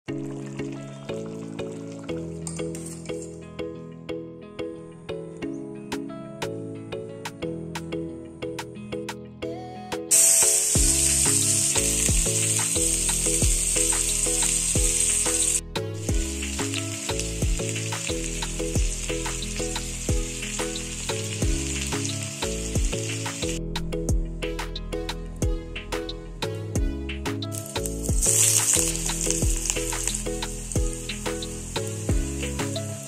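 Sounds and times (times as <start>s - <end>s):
background music: 0.0s - 33.0s
fish frying in sizzling oil: 10.1s - 23.6s, 27.5s - 33.0s.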